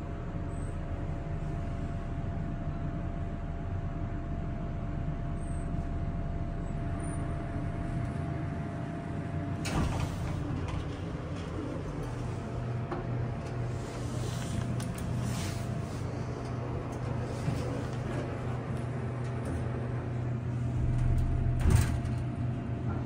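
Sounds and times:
elevator humming and whining: 0:00.0 - 0:23.0
elevator doors sliding open: 0:09.5 - 0:23.0
elevator stopping clunk: 0:09.6 - 0:12.2, 0:20.8 - 0:23.0.

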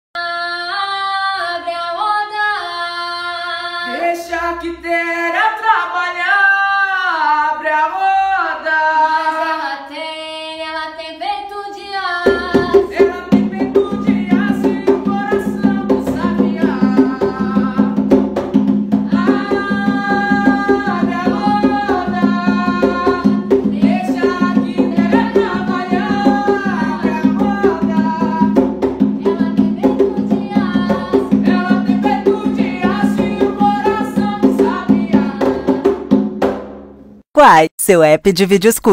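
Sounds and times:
woman singing: 0:00.2 - 0:04.2, 0:07.9 - 0:18.0, 0:19.1 - 0:36.0
man's voice: 0:03.9 - 0:08.0
hand drum rhythm: 0:12.3 - 0:36.8.

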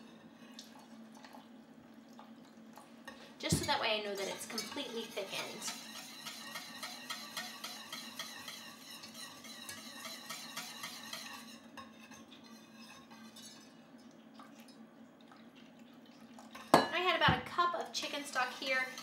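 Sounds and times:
whisk scraping saucepan: 0:03.1 - 0:13.8, 0:16.5 - 0:19.0.

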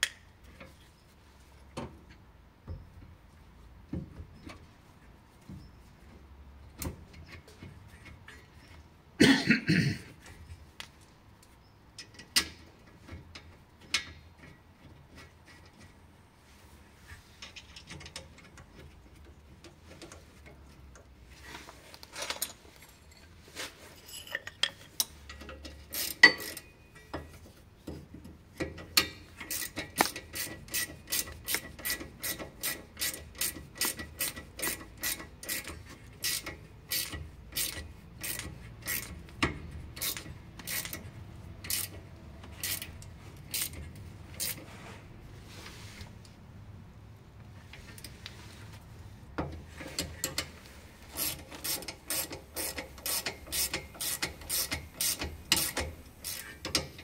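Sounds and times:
tools clinking and knocking: 0:22.1 - 0:31.7
hand ratchet clicking: 0:25.0 - 0:26.7, 0:28.8 - 0:43.8, 0:51.2 - 0:57.0.

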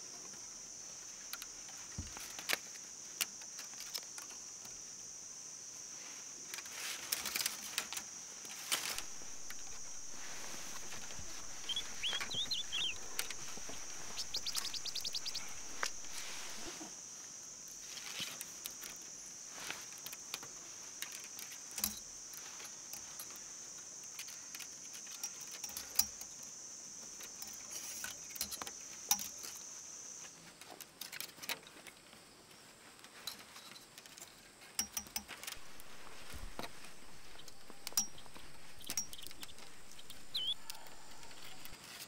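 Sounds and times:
insect trilling: 0:07.3 - 0:19.3, 0:34.9 - 0:42.0
handling clicks and taps: 0:34.8 - 0:41.8.

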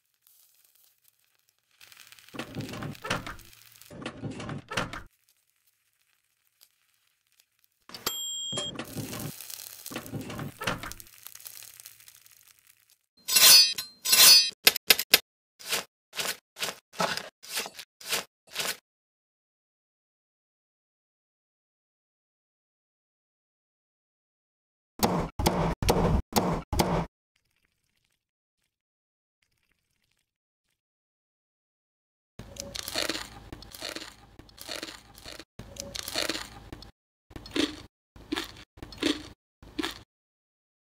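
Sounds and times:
crunching and chewing crispy pork: 0:00.0 - 0:02.7, 0:03.4 - 0:03.9, 0:05.1 - 0:07.9, 0:09.0 - 0:10.2, 0:10.9 - 0:13.1, 0:29.5 - 0:30.3, 0:32.4 - 0:40.1
knife crunching through pork crackling: 0:09.3 - 0:10.2, 0:15.6 - 0:18.8, 0:32.5 - 0:36.6, 0:37.4 - 0:40.0.

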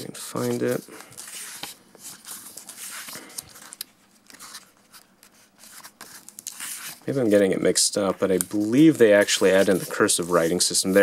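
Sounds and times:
book pages flipping: 0:00.0 - 0:11.0.

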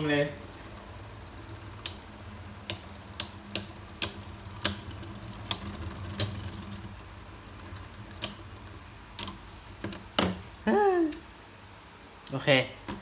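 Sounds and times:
spinning tops whirring: 0:00.0 - 0:11.4.

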